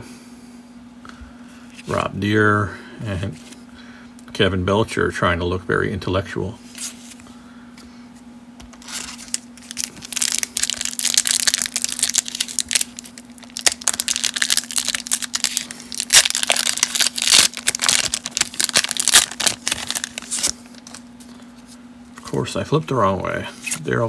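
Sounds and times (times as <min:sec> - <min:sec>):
foil wrapper crinkling and tearing: 0:08.8 - 0:21.4.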